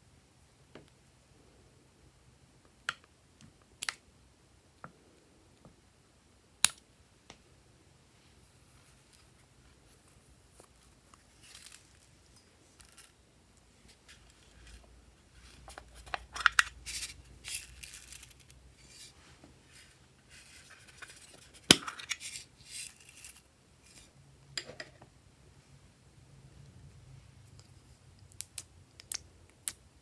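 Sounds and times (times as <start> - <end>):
plastic sequins rattling: 11.2 - 13.1.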